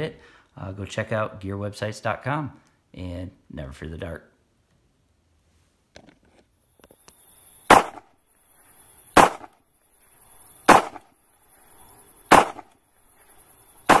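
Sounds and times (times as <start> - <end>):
sharp bangs: 7.7 - 8.1, 9.1 - 9.6, 10.6 - 11.2, 12.2 - 12.8, 13.8 - 14.0.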